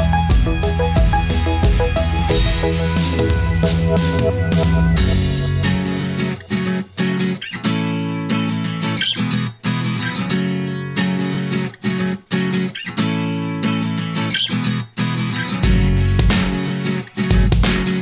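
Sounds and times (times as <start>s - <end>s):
guitar chords strummed: 0.0s - 18.0s.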